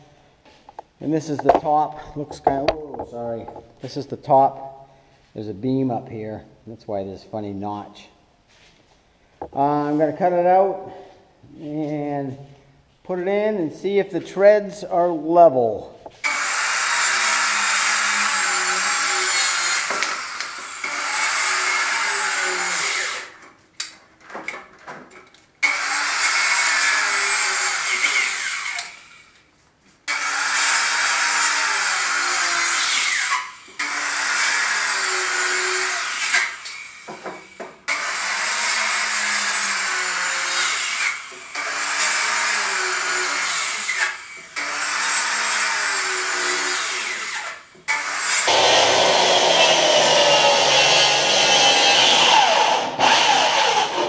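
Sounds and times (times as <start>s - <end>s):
circular saw cutting wood: 1.4s - 3.6s, 16.1s - 23.4s, 25.6s - 29.3s, 30.1s - 54.0s.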